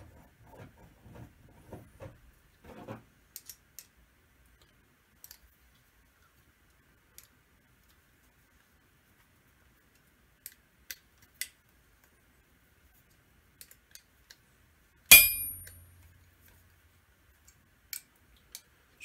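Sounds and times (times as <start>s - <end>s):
ringing metal clang: 15.1s - 16.0s.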